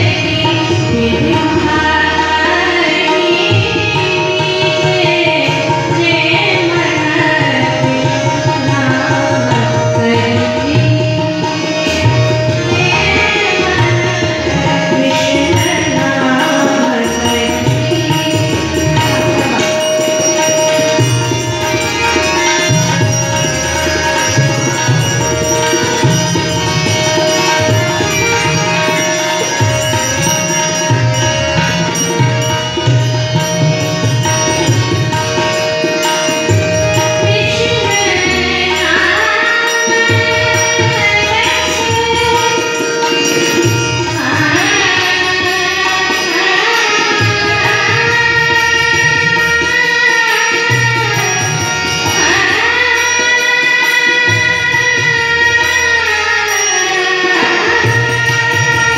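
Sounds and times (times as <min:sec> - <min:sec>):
woman singing: 0:00.0 - 0:23.2, 0:37.0 - 0:58.9
harmonium sustained tones: 0:00.0 - 0:58.9
tabla playing a steady rhythm: 0:00.0 - 0:58.9.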